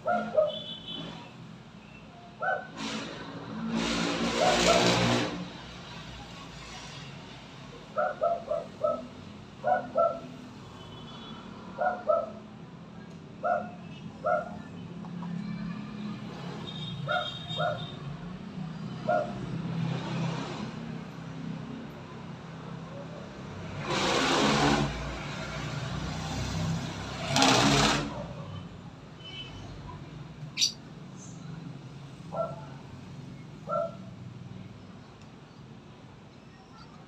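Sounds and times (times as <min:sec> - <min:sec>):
distant dog yelping: 0:00.0 - 0:00.6, 0:02.4 - 0:02.8, 0:08.0 - 0:10.4, 0:11.8 - 0:12.5, 0:13.4 - 0:14.8, 0:17.0 - 0:18.0, 0:19.0 - 0:19.4, 0:30.6 - 0:30.8, 0:32.3 - 0:32.8, 0:33.6 - 0:34.1
loud rushing noise: 0:23.6 - 0:25.4, 0:26.9 - 0:28.2.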